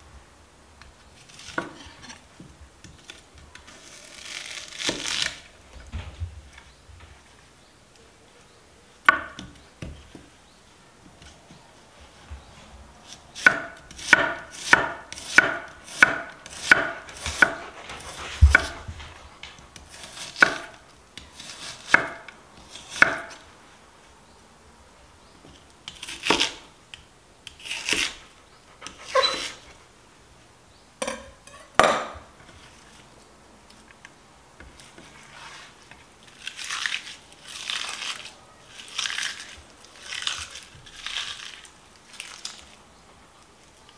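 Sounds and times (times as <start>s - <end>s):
knife chopping on cutting board: 13.4s - 17.6s, 18.4s - 18.9s, 19.8s - 20.8s, 21.4s - 22.3s, 22.9s - 23.4s, 31.0s - 32.3s.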